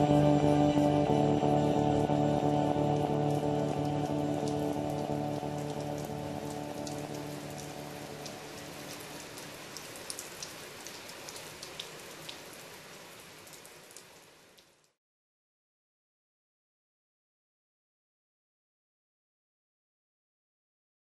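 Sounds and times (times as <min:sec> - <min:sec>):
music: 0:00.0 - 0:09.2
rain falling: 0:00.0 - 0:15.0
sharp raindrop ticks: 0:02.9 - 0:12.5, 0:13.4 - 0:15.0.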